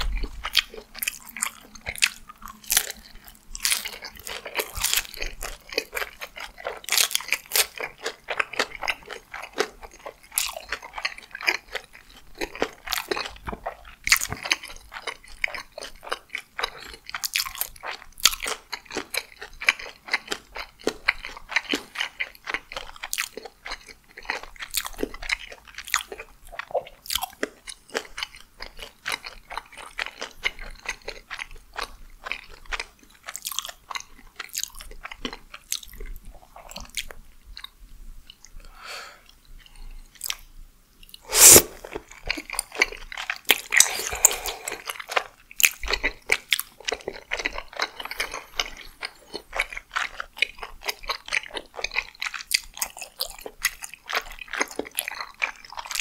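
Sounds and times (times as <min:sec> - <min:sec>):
chewing food: 0:00.0 - 0:56.0
mouth clicks: 0:41.2 - 0:42.0, 0:43.8 - 0:45.0.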